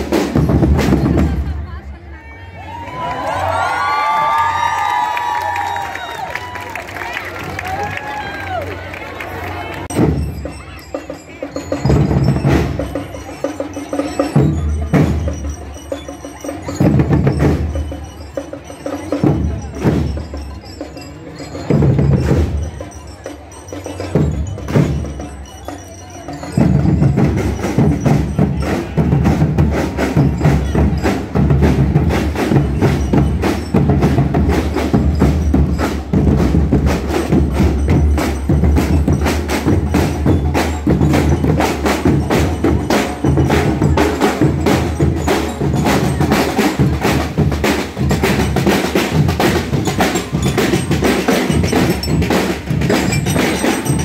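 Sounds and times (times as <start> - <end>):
snare drums: 0.0 - 1.6, 11.5 - 20.4, 26.3 - 54.0
bass drums: 0.0 - 1.7, 26.5 - 54.0
bell lyre notes ringing: 9.9 - 54.0
cymbals: 9.9 - 54.0.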